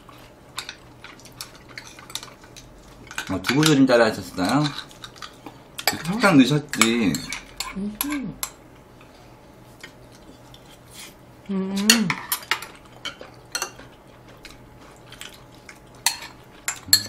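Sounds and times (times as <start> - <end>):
chopsticks clinking on ceramic bowls: 4.4 - 8.6, 16.0 - 17.0.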